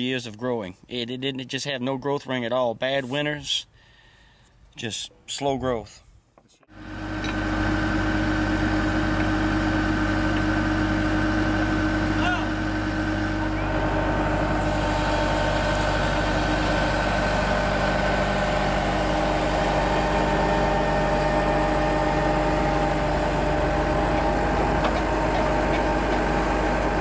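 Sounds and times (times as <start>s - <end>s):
engine idling: 6.7s - 27.0s.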